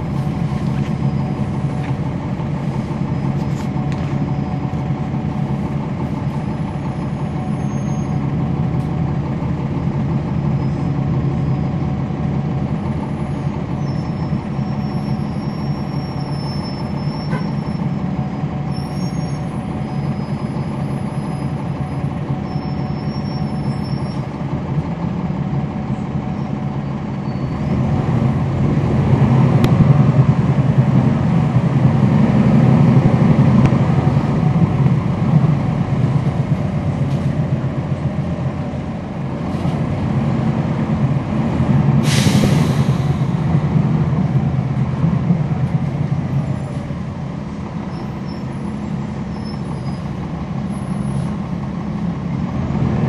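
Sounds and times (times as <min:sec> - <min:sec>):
bus diesel engine droning: 0:00.0 - 0:53.0.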